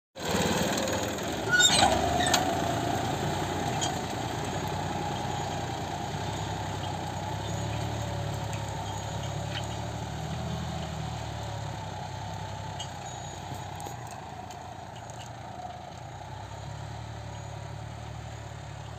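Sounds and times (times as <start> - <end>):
tractor diesel engine running: 0.2 - 18.9.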